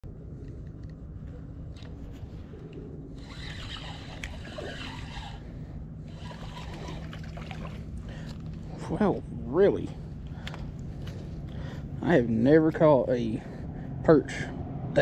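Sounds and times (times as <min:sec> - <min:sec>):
steady low rumble: 0:00.0 - 0:15.0
fishing reel whirring: 0:03.1 - 0:08.5
light water splashing: 0:06.1 - 0:08.6.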